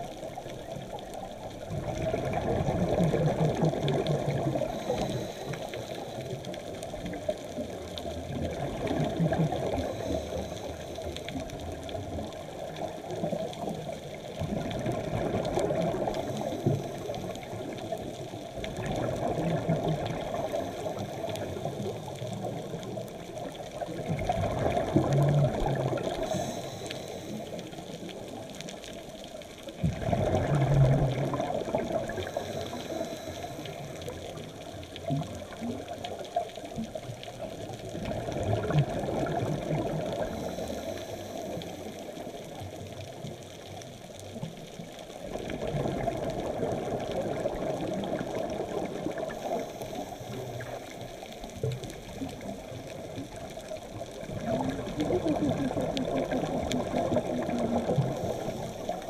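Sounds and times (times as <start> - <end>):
exhaled bubbles: 0.0 - 59.0
regulator breathing hiss: 4.6 - 6.4, 26.1 - 27.9, 32.2 - 34.2, 40.2 - 42.3, 58.1 - 59.0.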